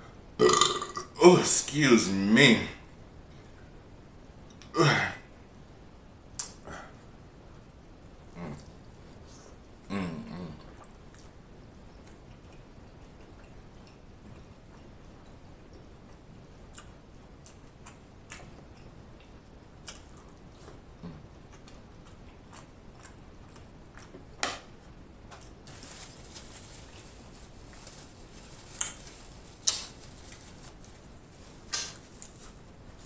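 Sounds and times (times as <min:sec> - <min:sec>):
wet mouth clicks and smacks: 0:06.4 - 0:06.6
close chewing: 0:12.0 - 0:24.3.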